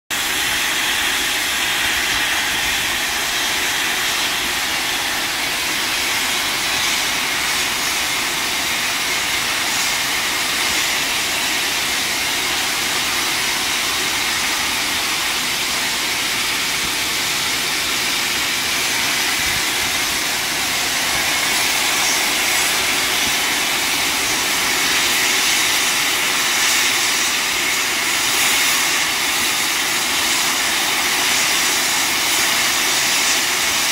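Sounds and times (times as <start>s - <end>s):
steam locomotive hissing steam: 0.1s - 33.9s.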